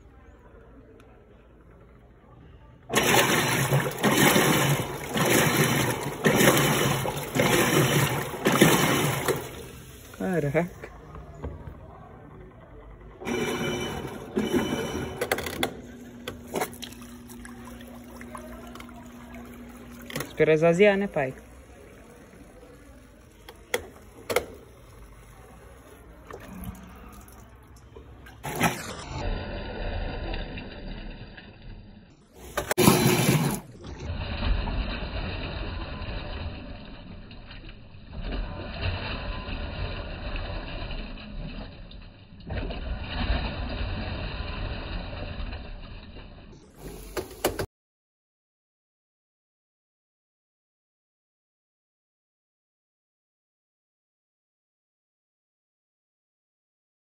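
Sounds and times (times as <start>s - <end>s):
water sloshing in tub: 2.9s - 11.7s, 13.2s - 29.2s
washing machine agitating: 2.9s - 47.7s.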